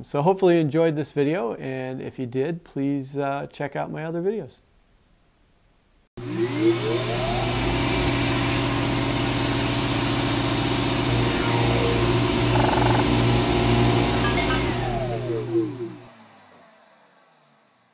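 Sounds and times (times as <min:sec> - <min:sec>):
electric motor whining and humming: 0:06.2 - 0:16.8.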